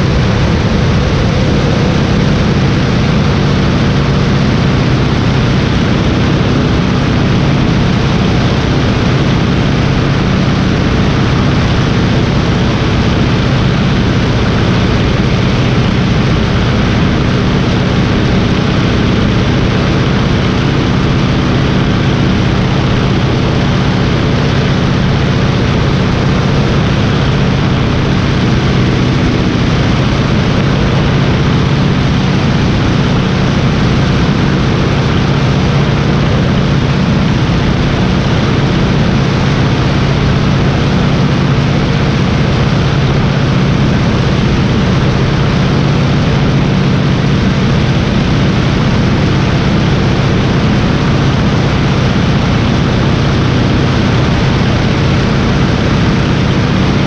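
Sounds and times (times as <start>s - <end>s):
biplane engine and propeller: 0.0s - 57.0s
wind rushing over microphone: 0.0s - 57.0s.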